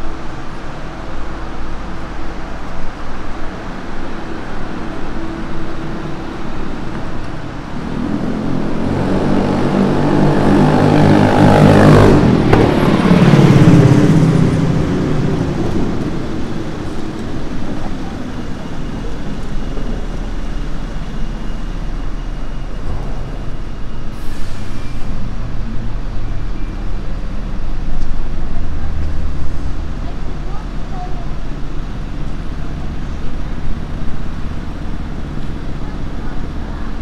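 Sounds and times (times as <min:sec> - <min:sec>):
road traffic noise: 0:00.0 - 0:37.0
vehicle passing close by: 0:07.7 - 0:16.9.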